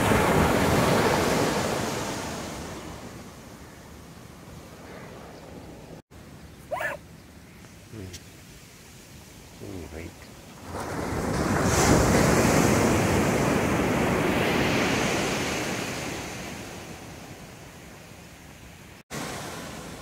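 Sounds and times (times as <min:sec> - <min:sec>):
wave breaking on beach: 0:00.0 - 0:03.2, 0:10.6 - 0:17.2, 0:19.1 - 0:20.0.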